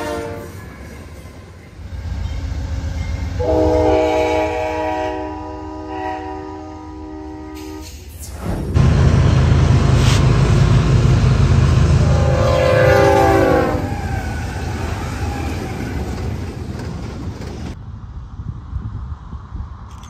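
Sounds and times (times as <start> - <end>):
locomotive air horn blowing: 0.0 - 0.6, 3.3 - 8.1, 12.0 - 14.2
diesel locomotives rumbling: 0.0 - 20.0.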